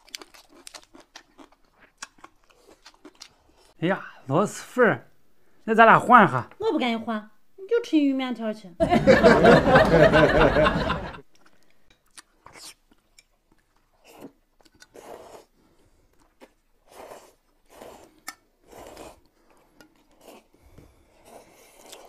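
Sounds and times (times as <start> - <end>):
noodles slurped and chewed: 0.0 - 3.8, 11.3 - 22.0.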